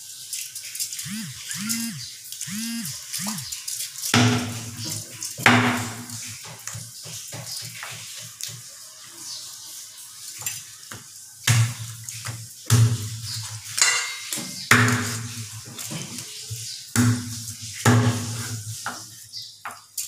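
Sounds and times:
cleaver chopping on wooden board: 4.2 - 4.7, 5.4 - 6.2.

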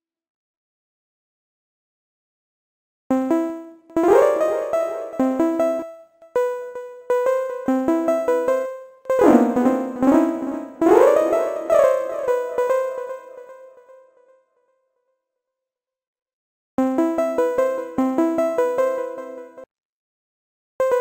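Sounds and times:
synthesizer plucked arpeggio: 4.0 - 5.9, 9.2 - 13.9.

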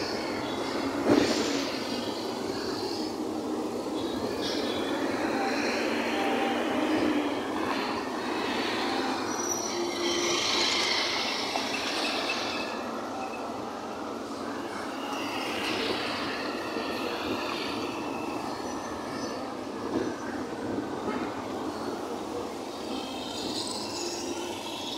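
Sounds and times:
cars and buses passing: 0.0 - 24.9
high squeals: 3.9 - 13.6, 22.7 - 24.9.

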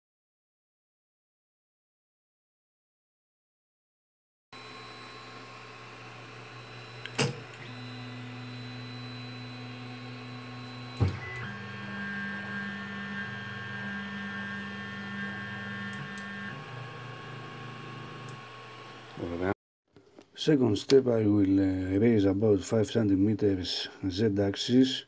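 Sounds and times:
fans humming: 4.6 - 19.5
stepper motors whining: 4.6 - 19.5.

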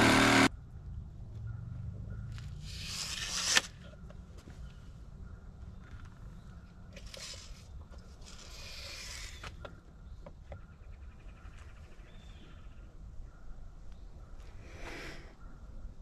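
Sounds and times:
tape measure clicks: 2.6 - 3.9
tape measure rattling: 2.6 - 3.9.

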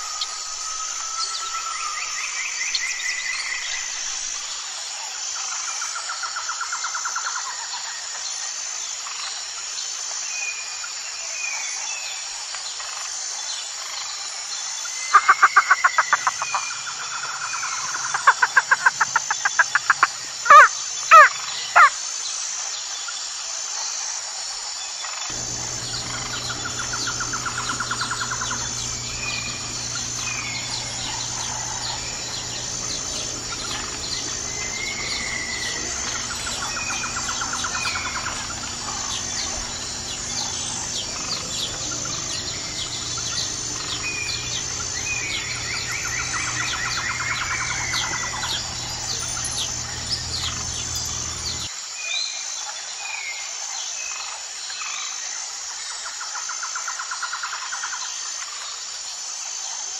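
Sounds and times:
high insect drone: 0.0 - 11.4, 12.8 - 22.8, 24.3 - 51.8
birds chirping and calling: 25.3 - 51.7
low steady hum: 25.3 - 51.7.

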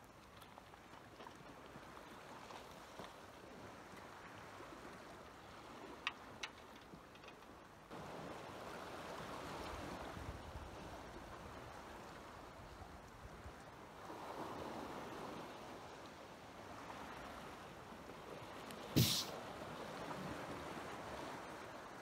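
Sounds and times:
small waves washing against rocks: 18.9 - 19.6.

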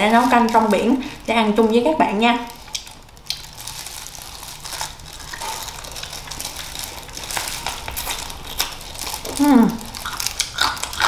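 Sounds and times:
crunchy chewing: 2.5 - 11.0.

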